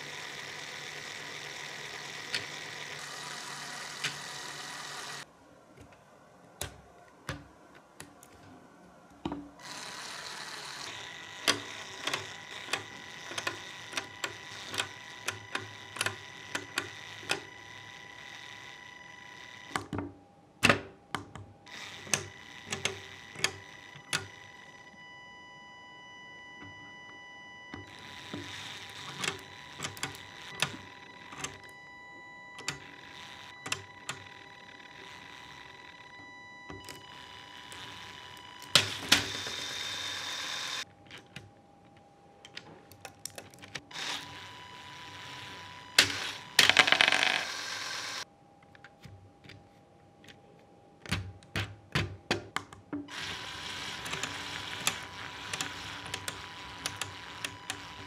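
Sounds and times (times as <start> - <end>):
toy gear train whirring: 0.0 - 5.3, 9.6 - 19.8, 21.7 - 24.6, 27.8 - 31.6, 32.6 - 36.0, 36.8 - 40.9, 43.9 - 48.3, 53.1 - 58.0.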